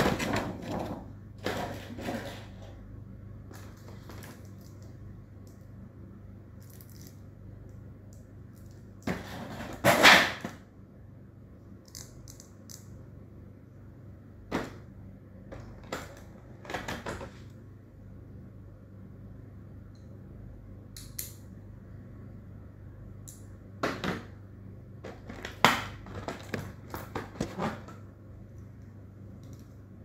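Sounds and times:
plastic pieces scraping and clattering: 0.0s - 2.7s, 25.0s - 28.0s
faint low hum: 0.0s - 30.0s.

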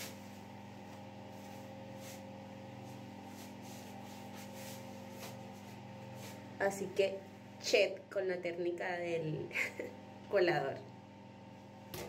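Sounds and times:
hands rustling curly hair: 0.0s - 6.4s
low electrical hum: 0.0s - 12.0s.

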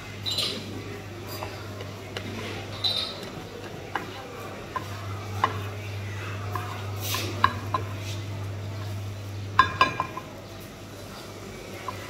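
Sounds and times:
eggs frying in oil: 11.0s - 12.0s.

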